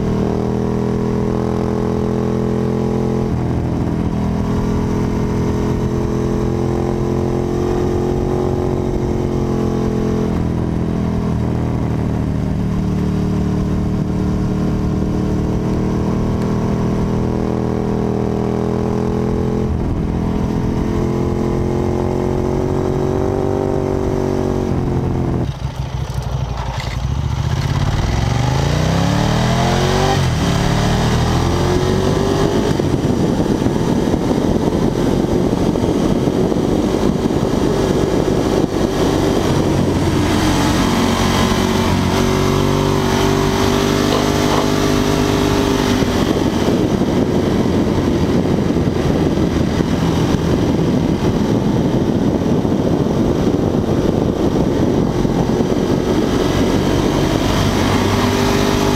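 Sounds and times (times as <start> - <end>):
wind rush: 0.0 - 26.0, 26.7 - 58.9
motorcycle engine revving: 0.0 - 58.9.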